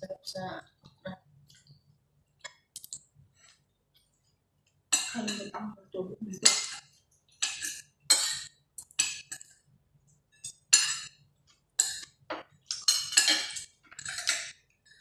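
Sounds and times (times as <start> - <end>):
cutlery clinking on plates: 4.9 - 5.5, 7.4 - 9.5, 10.4 - 11.1, 11.8 - 14.6.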